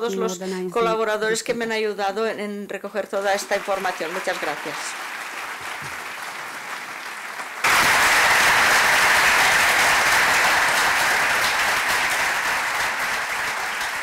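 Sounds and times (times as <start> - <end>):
audience applauding: 3.2 - 14.0.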